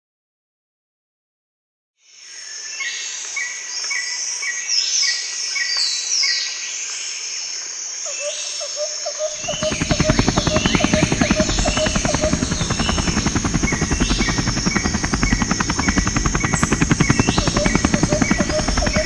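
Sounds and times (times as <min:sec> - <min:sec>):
insect drone: 0:06.8 - 0:19.0
low fast pulsing rhythm: 0:09.4 - 0:19.0.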